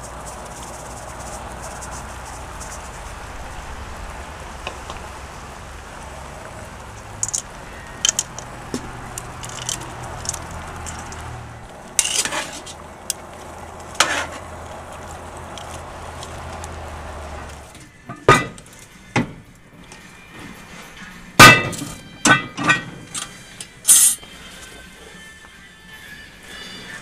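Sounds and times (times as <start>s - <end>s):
steady low hum: 0.0s - 17.9s
sharp metal clanks: 21.4s - 24.2s.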